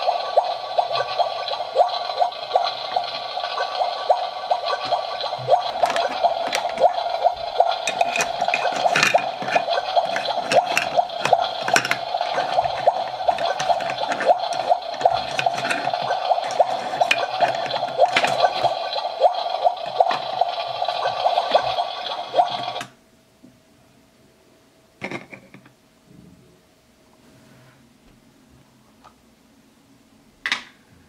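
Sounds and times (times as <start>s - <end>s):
toy stove bubbling sound: 0.0s - 22.9s
plastic toys clicking on pot: 0.3s - 22.9s.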